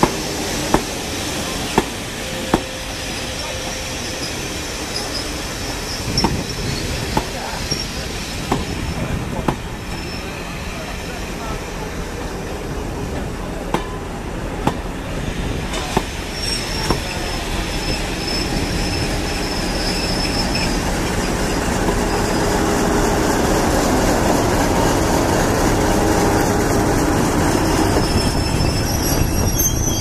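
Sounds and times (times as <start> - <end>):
rail joint clicks: 0.0 - 2.9, 4.2 - 10.2, 13.6 - 22.2
high wheel squeal: 0.0 - 9.0, 9.8 - 11.1, 15.7 - 23.9, 26.7 - 30.0
diesel locomotive: 0.0 - 30.0
train coaches rumbling on rails: 0.0 - 30.0.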